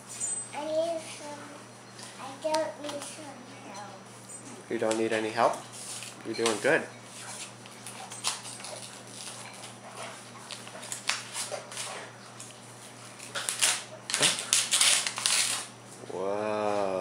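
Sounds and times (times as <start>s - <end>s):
paper envelope tearing: 13.2s - 15.7s.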